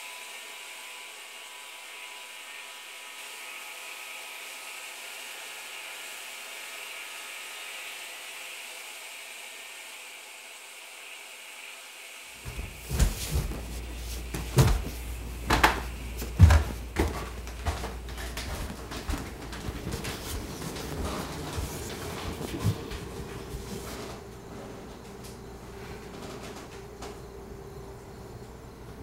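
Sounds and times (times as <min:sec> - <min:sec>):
irregular knocks and thumps: 0:12.4 - 0:23.6.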